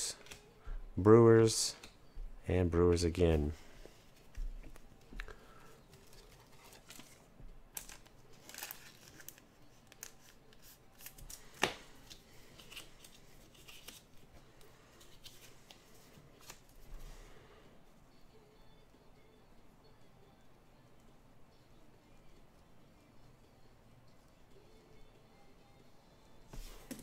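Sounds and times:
plastic sleeves rustling: 0:05.9 - 0:17.0.

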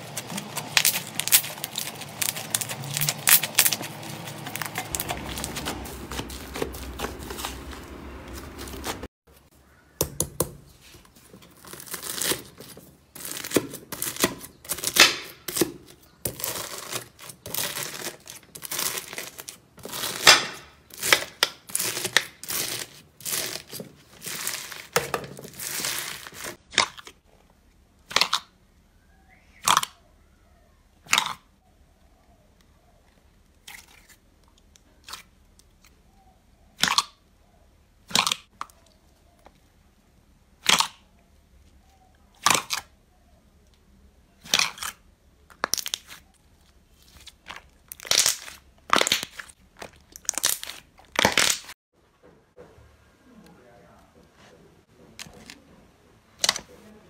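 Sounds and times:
hands squishing slime: 0:00.0 - 0:09.1, 0:44.4 - 0:51.7
knife cutting crunchy slime: 0:42.4 - 0:42.9.

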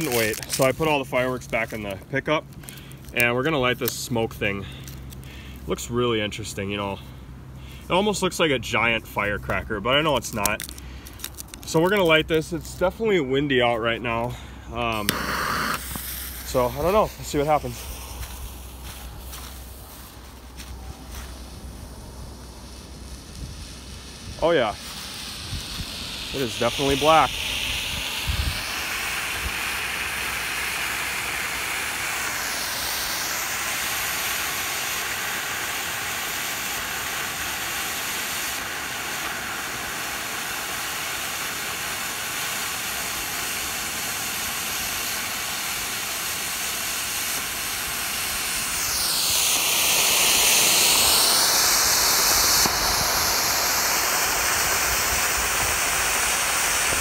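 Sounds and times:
smoke firework hissing: 0:00.0 - 0:57.0.

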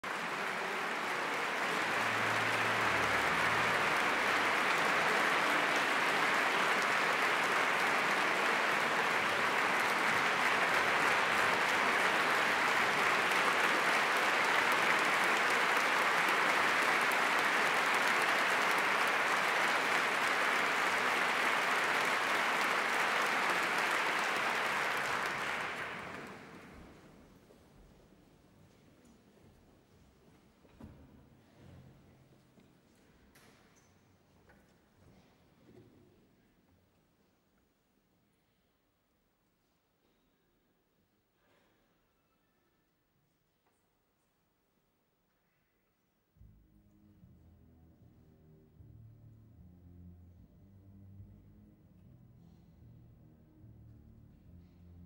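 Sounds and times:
audience applauding: 0:00.0 - 0:27.0.

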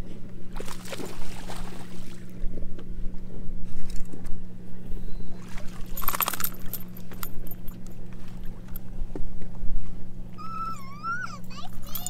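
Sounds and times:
steady low hum: 0:00.0 - 0:12.0
fish splashing and rattling: 0:05.4 - 0:08.8.

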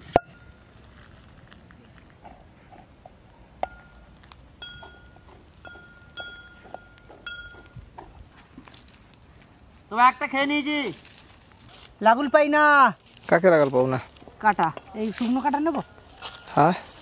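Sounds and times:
light metallic clinks: 0:04.6 - 0:07.8.

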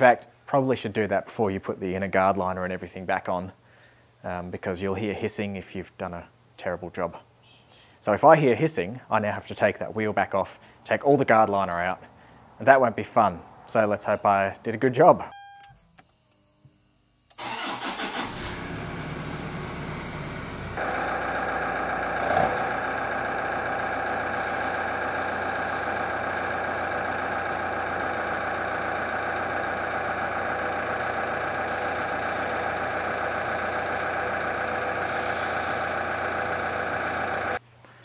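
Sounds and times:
diesel engine starting and idling: 0:17.0 - 0:37.6.

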